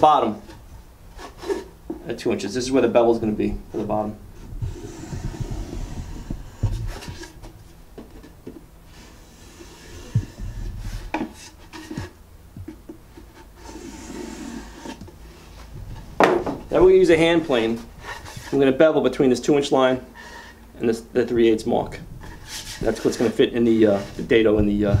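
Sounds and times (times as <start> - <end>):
marking gauge scraping wood: 1.1 - 1.7, 4.6 - 7.4, 8.9 - 12.1, 13.2 - 15.2, 22.2 - 24.4
light knocks on wood: 16.2 - 16.7.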